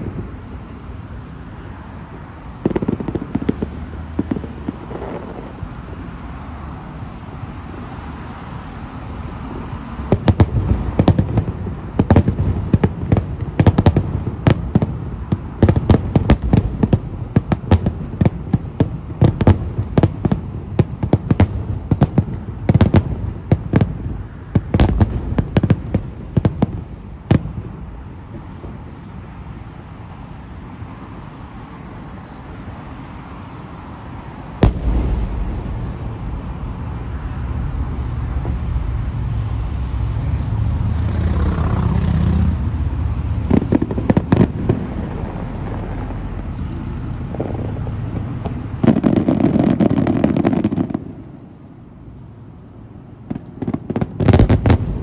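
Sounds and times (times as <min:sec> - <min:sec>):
fireworks bursting with sharp bangs: 0:00.0 - 0:51.5, 0:52.4 - 0:55.0
low rumble: 0:34.6 - 0:48.8.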